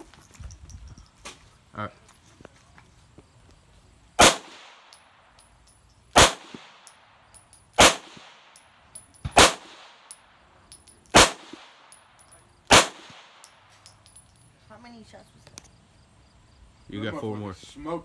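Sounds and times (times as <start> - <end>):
pistol shots with echo: 4.2 - 5.0, 6.1 - 10.2, 11.1 - 14.2.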